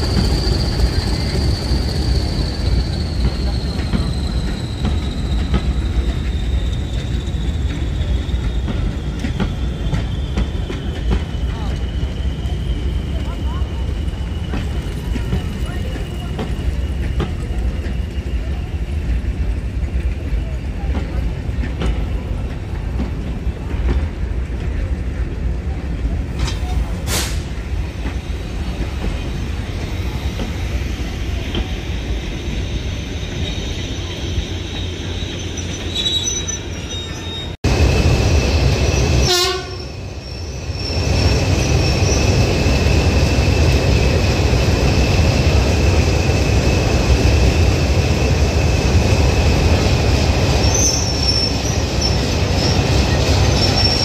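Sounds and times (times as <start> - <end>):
high squeal: 0.0 - 14.8, 29.4 - 54.0
diesel train engine rumble: 0.0 - 54.0.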